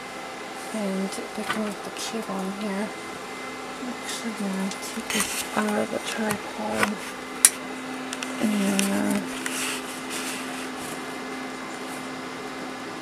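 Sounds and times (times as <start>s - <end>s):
cooling fans humming: 0.0s - 13.0s.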